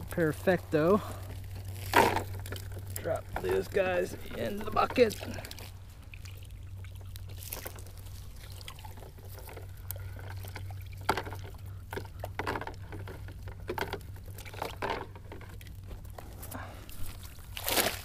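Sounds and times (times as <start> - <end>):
steady low hum: 0.0 - 18.0
short sharp splashes and knocks: 17.0 - 18.0.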